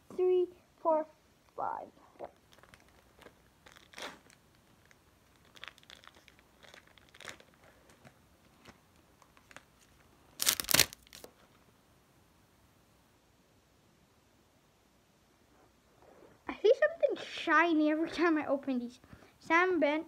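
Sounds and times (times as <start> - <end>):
plastic wrapper tearing: 2.2 - 11.3
plastic wrapper crinkling: 2.2 - 11.5.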